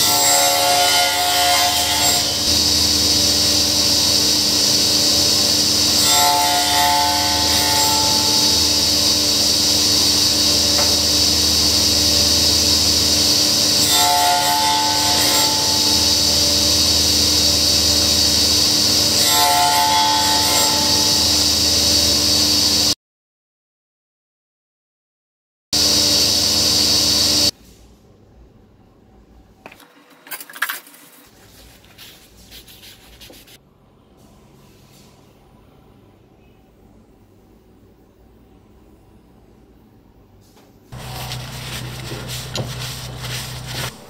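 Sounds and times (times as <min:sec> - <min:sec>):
saw blade cutting wood: 0:05.0 - 0:21.5, 0:41.0 - 0:44.0
table saw blade spinning: 0:41.0 - 0:44.0.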